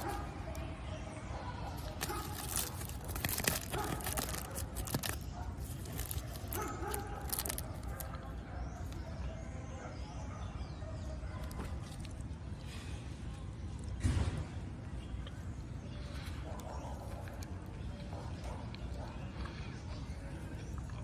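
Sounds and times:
plastic wrapper crinkling: 0:01.8 - 0:08.2.

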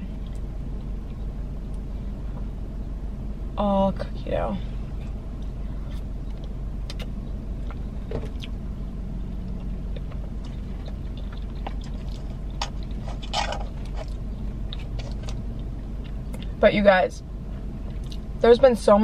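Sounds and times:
car interior hum: 0:00.0 - 0:19.0
chewing and lip smacks: 0:05.9 - 0:08.6, 0:09.5 - 0:16.6, 0:17.8 - 0:18.3.

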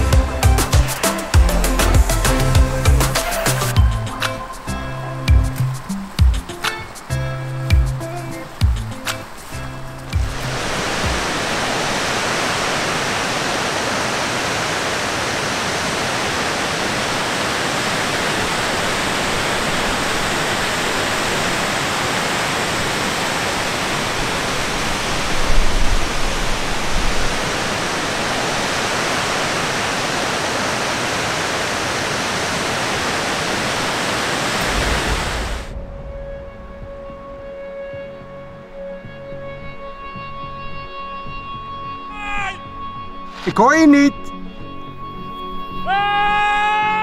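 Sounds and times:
low bumps: 0:00.0 - 0:11.4, 0:34.6 - 0:40.6
stream rushing over rocks: 0:00.0 - 0:35.8.

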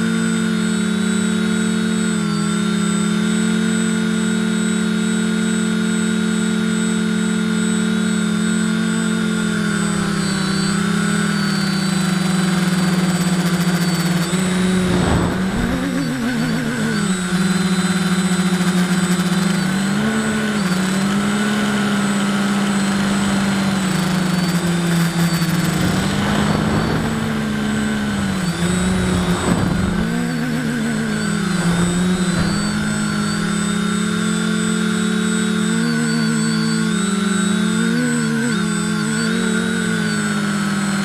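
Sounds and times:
drone propellers buzzing: 0:00.0 - 0:41.0
wind on microphone: 0:14.3 - 0:16.2, 0:25.6 - 0:33.6.

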